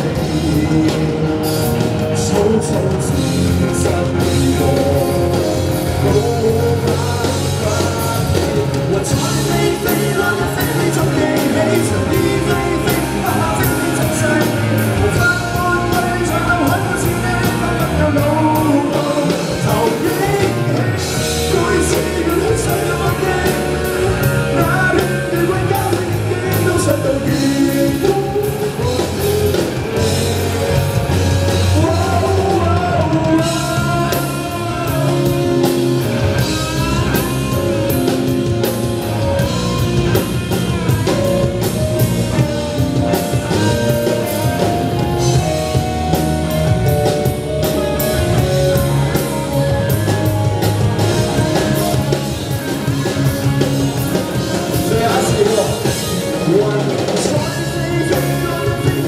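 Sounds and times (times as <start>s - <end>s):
live rock band playing: 0.0s - 59.0s
person singing: 0.0s - 59.0s.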